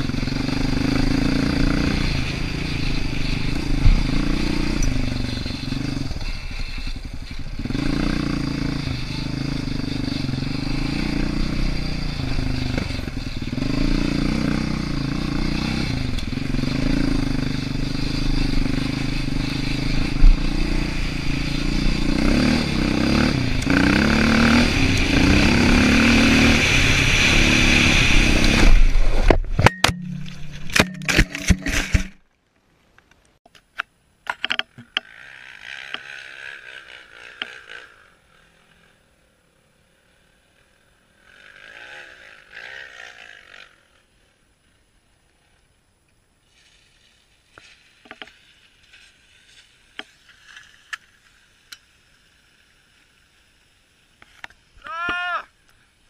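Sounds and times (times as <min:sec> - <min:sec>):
atv engine running: 0:00.0 - 0:32.2, 0:34.4 - 0:45.6.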